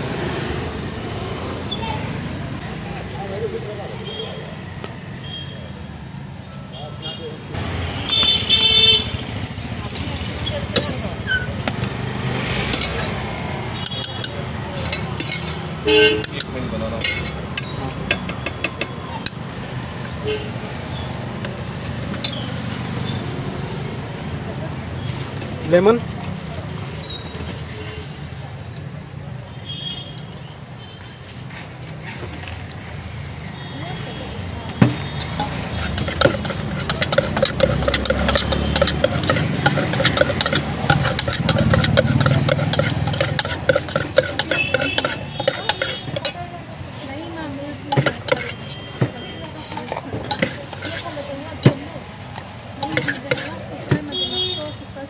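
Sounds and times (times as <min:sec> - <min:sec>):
street traffic rumble: 0:00.0 - 0:55.0
steel spoons clinking on bowls: 0:12.6 - 0:19.5, 0:21.4 - 0:24.4, 0:35.0 - 0:51.8, 0:52.8 - 0:54.1.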